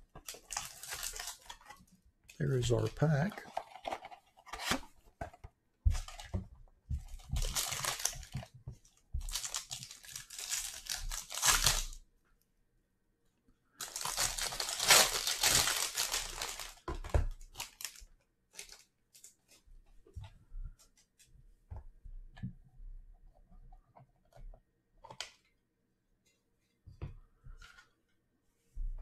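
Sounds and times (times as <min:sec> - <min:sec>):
foil wrapper crinkling: 0:00.3 - 0:01.7, 0:07.4 - 0:08.3, 0:09.3 - 0:12.0, 0:13.8 - 0:16.8.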